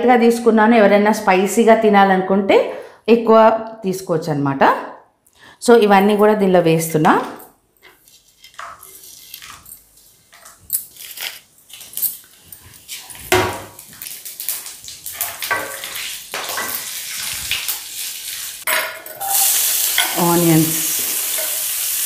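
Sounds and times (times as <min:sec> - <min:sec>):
faint oil sizzle: 0:12.3 - 0:22.0
spices clinking against pan: 0:18.7 - 0:20.4, 0:21.1 - 0:21.9.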